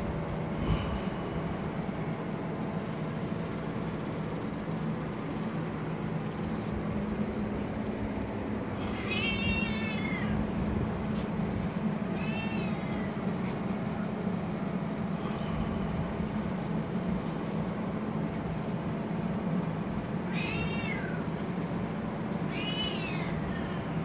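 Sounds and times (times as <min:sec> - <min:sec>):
low mechanical hum: 0:00.0 - 0:24.0
cat meowing: 0:08.8 - 0:10.4, 0:12.2 - 0:13.2, 0:20.3 - 0:21.3, 0:22.5 - 0:24.0.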